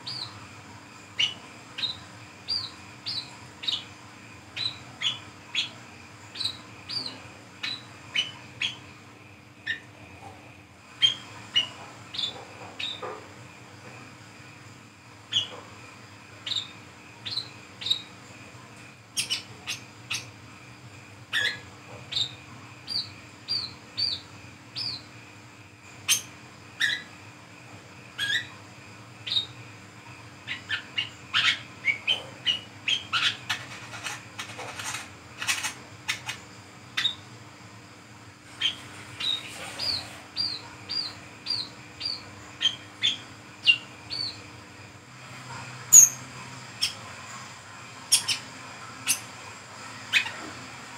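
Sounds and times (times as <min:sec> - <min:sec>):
bird chirping and squeaking: 0:01.2 - 0:03.9, 0:04.6 - 0:05.8, 0:06.4 - 0:08.8, 0:11.0 - 0:13.0, 0:15.3 - 0:15.6, 0:19.2 - 0:20.3, 0:21.3 - 0:24.2, 0:26.1 - 0:27.1, 0:28.2 - 0:28.5, 0:30.5 - 0:36.4, 0:37.0 - 0:37.2, 0:38.6 - 0:44.4, 0:45.9 - 0:46.2, 0:48.1 - 0:49.3, 0:50.1 - 0:50.4.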